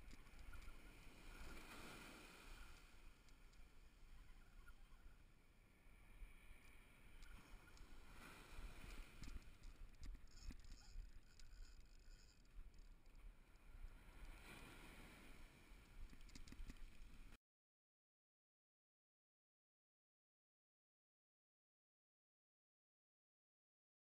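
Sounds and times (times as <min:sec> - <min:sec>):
surf washing up beach: 0:00.0 - 0:09.7, 0:13.6 - 0:17.4
light clicks: 0:15.8 - 0:17.2.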